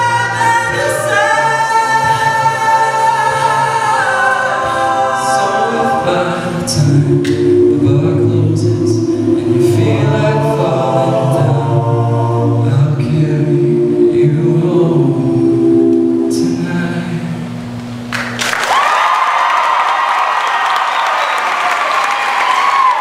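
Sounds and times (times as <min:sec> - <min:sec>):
men singing in harmony: 0:00.0 - 0:17.5.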